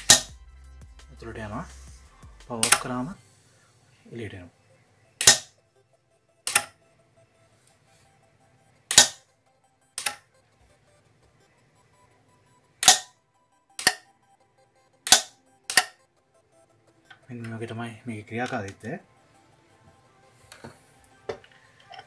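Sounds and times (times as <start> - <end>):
metallic latch bolt snaps: 5.2 - 5.5, 6.5 - 6.7, 8.9 - 9.2, 12.8 - 13.1, 15.1 - 15.9.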